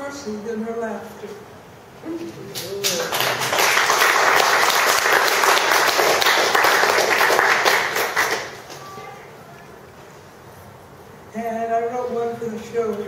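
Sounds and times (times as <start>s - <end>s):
audience applauding: 2.6s - 9.0s.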